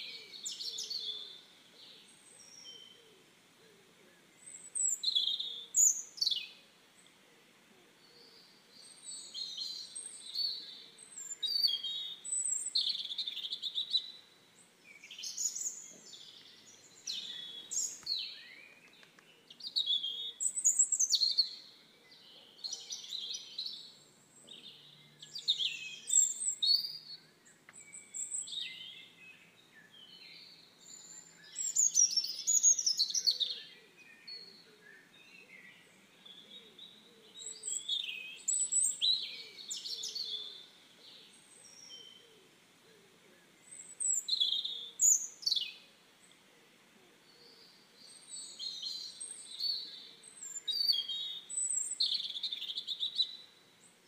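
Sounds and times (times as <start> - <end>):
birds chirping: 0.0 - 3.2, 8.0 - 42.5.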